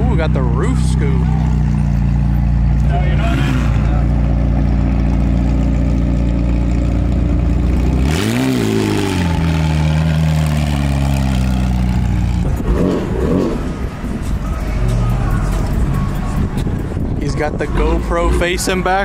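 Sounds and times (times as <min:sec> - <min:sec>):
sports car engine idling and revving: 0:00.0 - 0:19.0.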